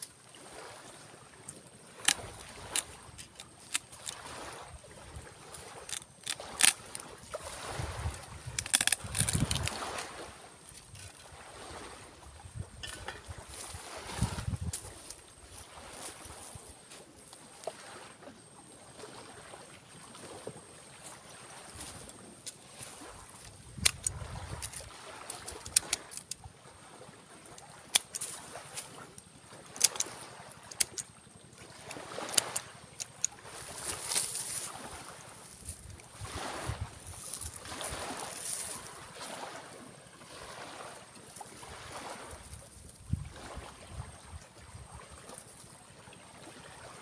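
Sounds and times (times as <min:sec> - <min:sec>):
cutting tool snapping deadwood: 0:05.8 - 0:07.0, 0:08.4 - 0:10.0, 0:23.8 - 0:26.4, 0:29.7 - 0:30.1, 0:30.7 - 0:31.0
hand tool clicking on wood: 0:08.5 - 0:09.8, 0:23.8 - 0:26.4, 0:27.9 - 0:28.8, 0:29.7 - 0:31.1, 0:31.8 - 0:34.6
loud wood crack: 0:08.5 - 0:09.9.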